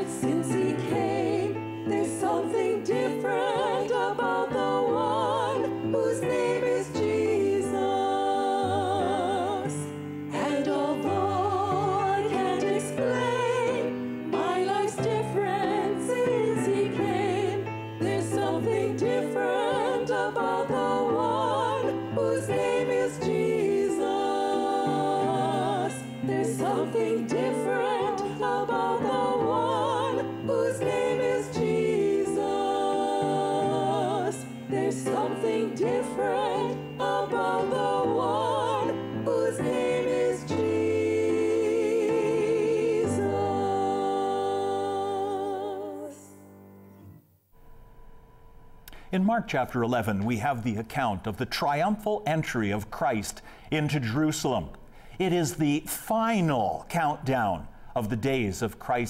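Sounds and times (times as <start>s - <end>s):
women singing a sacred song: 0.0s - 46.4s
piano: 0.0s - 55.7s.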